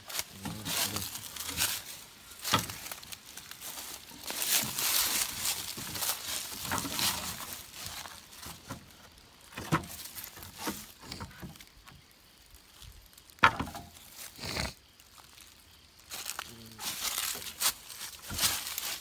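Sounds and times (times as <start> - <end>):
wooden boards knocking: 13.4 - 13.9.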